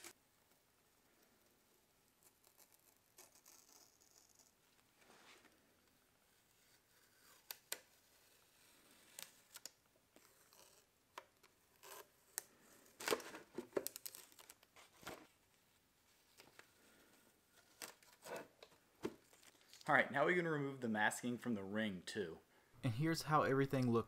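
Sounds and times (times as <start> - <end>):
masking tape ripping and crinkling: 11.7 - 15.1.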